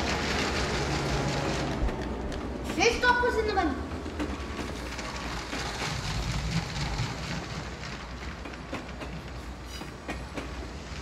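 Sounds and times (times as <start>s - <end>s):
wheels clicking over track joints: 0.0s - 11.0s.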